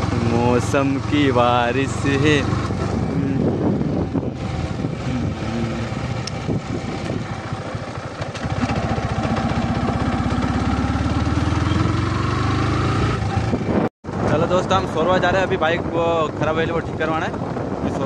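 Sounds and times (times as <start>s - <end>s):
motorcycle engine revving: 0.0s - 13.9s.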